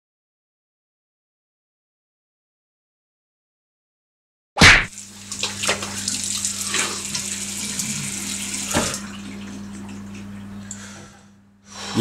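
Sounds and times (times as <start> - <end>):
sharp loud knock: 4.6 - 4.9
tap running into sink: 5.3 - 10.0.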